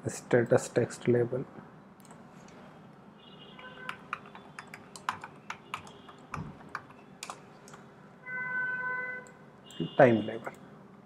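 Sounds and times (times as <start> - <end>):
typing on a keyboard: 3.8 - 7.8.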